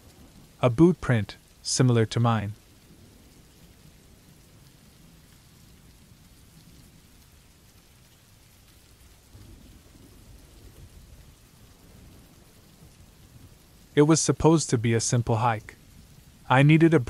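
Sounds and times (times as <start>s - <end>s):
low rumble of thunder: 0.0s - 0.6s, 2.6s - 14.0s, 15.7s - 16.5s
faint steady rain: 0.0s - 17.0s.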